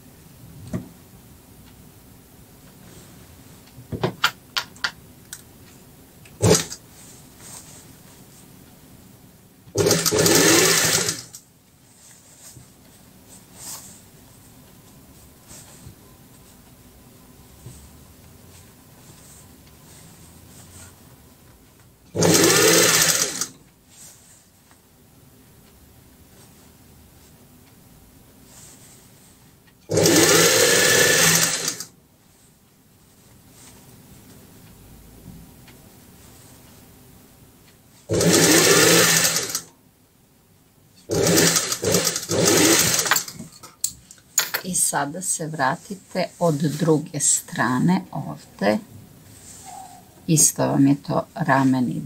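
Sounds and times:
sewing machine stitching: 6.4 - 6.8, 9.8 - 11.4, 22.1 - 23.6, 29.9 - 31.9, 38.1 - 39.7, 41.1 - 43.5.

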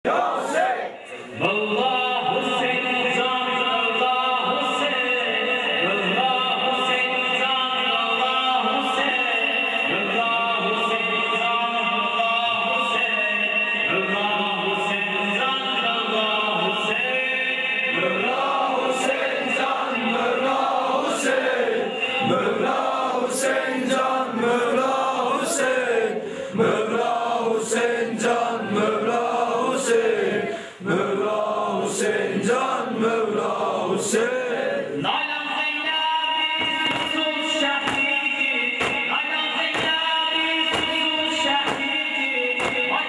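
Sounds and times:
men chanting a lament: 0.0 - 43.0
chest-beating slaps: 36.6 - 37.2, 37.8 - 38.1, 38.8 - 40.0, 40.7 - 42.0, 42.6 - 43.0.

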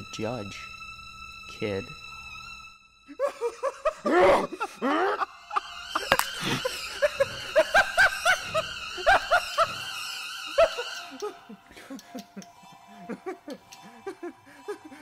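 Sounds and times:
person laughing: 3.1 - 9.8, 10.6 - 15.0.

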